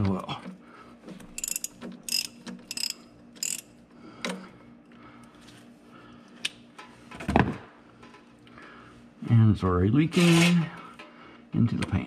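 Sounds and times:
socket ratchet clicking: 0:01.3 - 0:03.7.

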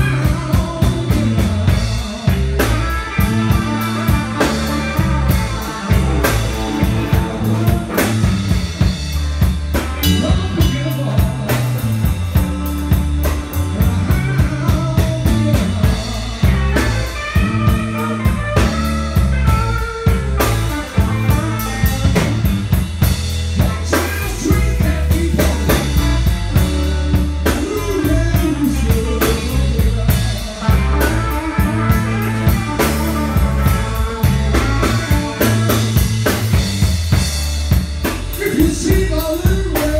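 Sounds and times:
drum kit steady beat: 0:00.0 - 0:39.9
electric bass: 0:00.0 - 0:39.9
electric guitars bending notes: 0:00.0 - 0:39.9.

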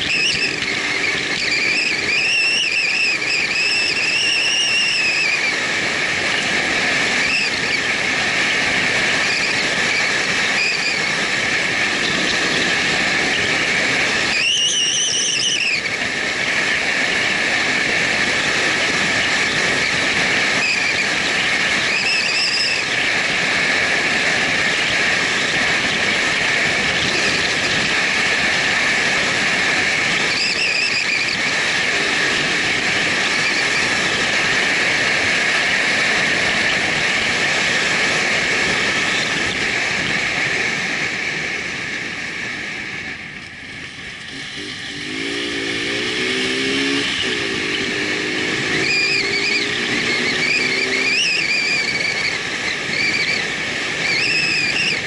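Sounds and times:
high whistling tone: 0:00.0 - 0:05.6, 0:07.2 - 0:07.8, 0:09.2 - 0:11.2, 0:14.2 - 0:16.0, 0:21.8 - 0:22.9, 0:30.3 - 0:31.5, 0:45.8 - 0:55.0
motorcycle engine running: 0:00.0 - 0:55.0
wind and road noise: 0:00.0 - 0:55.0.

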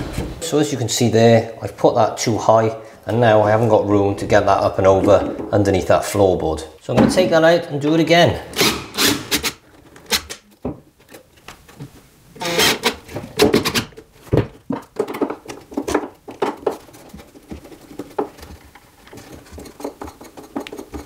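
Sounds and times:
hand tools clicking and scraping: 0:14.9 - 0:21.0.

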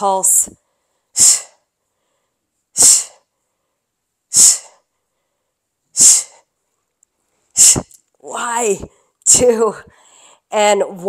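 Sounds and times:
woman's hissing exhalations: 0:01.1 - 0:01.7, 0:02.8 - 0:03.3, 0:04.3 - 0:04.8, 0:06.0 - 0:06.5, 0:07.6 - 0:07.9.

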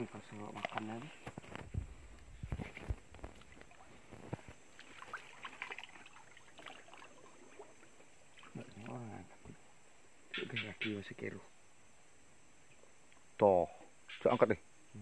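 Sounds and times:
leaves and twigs rustling: 0:00.0 - 0:09.4
swamp water sloshing: 0:00.2 - 0:01.4, 0:02.4 - 0:09.5.

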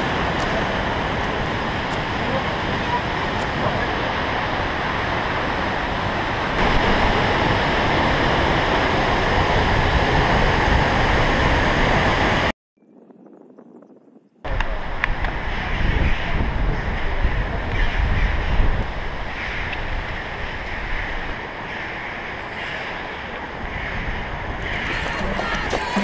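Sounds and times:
waterfall rushing: 0:00.0 - 0:12.5.

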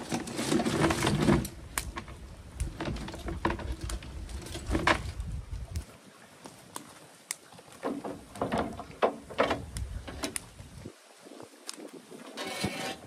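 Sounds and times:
steel traps and chains clanking: 0:12.2 - 0:13.0.

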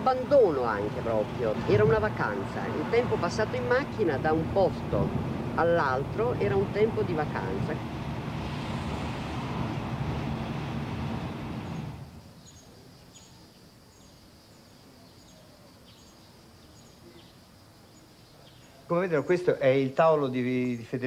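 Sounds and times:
car engine and road noise: 0:00.0 - 0:12.4
bird chirping: 0:11.2 - 0:18.9.

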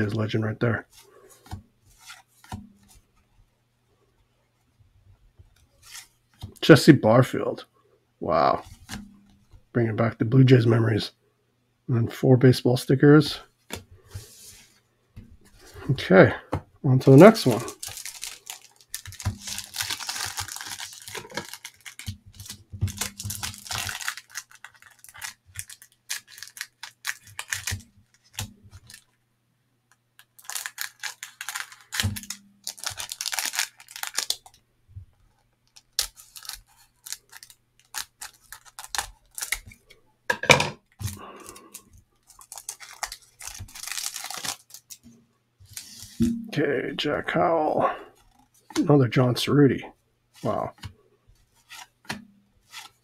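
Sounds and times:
cellophane wrapper crinkling: 0:17.0 - 0:29.2, 0:29.9 - 0:34.6, 0:35.2 - 0:40.0, 0:40.9 - 0:46.2, 0:50.4 - 0:53.0
cards clicking and sliding: 0:51.6 - 0:53.0.

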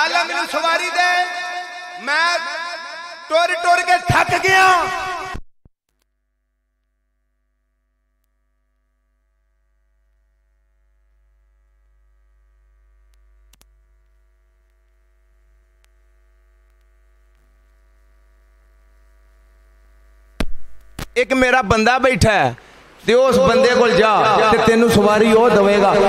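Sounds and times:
faint electrical mains hum: 0:06.2 - 0:26.0.

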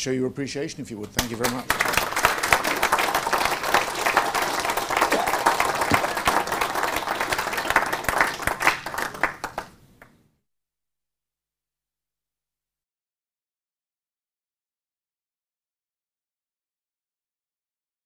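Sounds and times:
audience applauding: 0:01.2 - 0:09.8.

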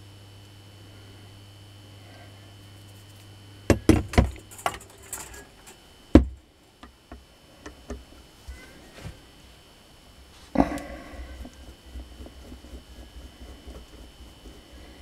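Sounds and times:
motor parts knocking on metal workbench: 0:03.7 - 0:06.4.

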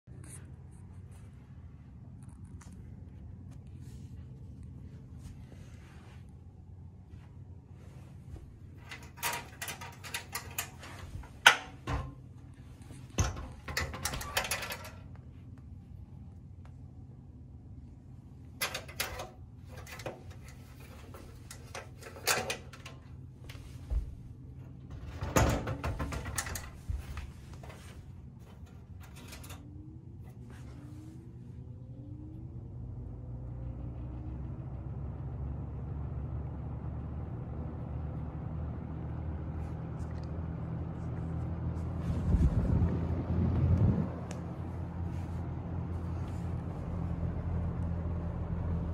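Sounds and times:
box fan motor hum: 0:00.4 - 0:48.9
clicks and knocks: 0:08.8 - 0:15.2, 0:18.6 - 0:23.6, 0:24.6 - 0:29.6
rush of air from fan blades: 0:41.8 - 0:47.0.

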